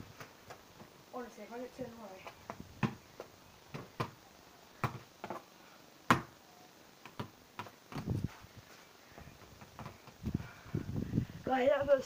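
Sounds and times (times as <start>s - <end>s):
balls bouncing on paving: 2.2s - 4.2s, 4.8s - 5.5s, 6.1s - 6.4s, 7.0s - 8.2s, 9.1s - 10.4s
balls knocking on backboard and rim: 6.1s - 6.3s.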